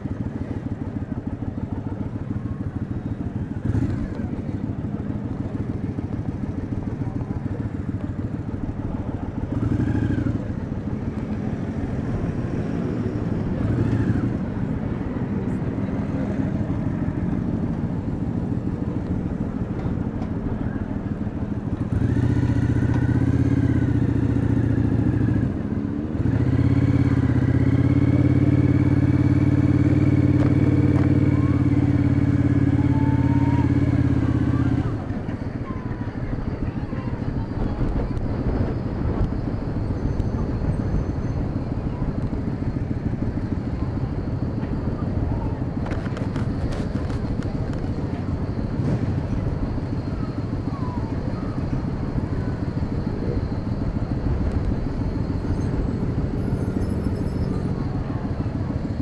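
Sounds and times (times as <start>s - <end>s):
motorcycle engine: 0.0s - 59.0s.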